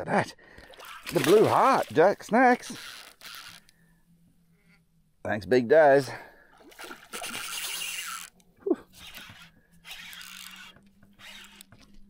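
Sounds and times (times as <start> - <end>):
fish splashing at water surface: 0.6 - 2.0.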